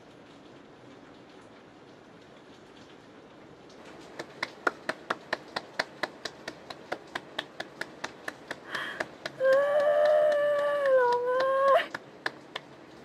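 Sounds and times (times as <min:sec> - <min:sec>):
hand claps: 0:04.0 - 0:12.8
woman's emotional cry: 0:08.8 - 0:12.0.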